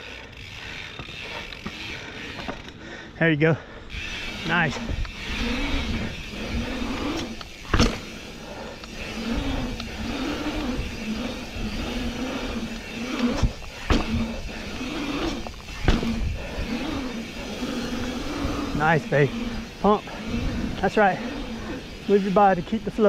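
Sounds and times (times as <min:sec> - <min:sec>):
bike tyres humming on asphalt: 0:00.0 - 0:23.0
bike clunks: 0:00.8 - 0:03.0, 0:06.9 - 0:18.0.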